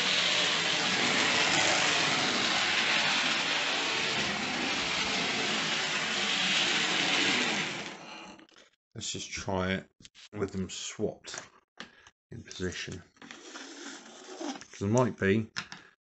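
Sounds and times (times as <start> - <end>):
wheels rattling over rails: 0.0 - 8.0
electric motors whirring: 0.0 - 8.2.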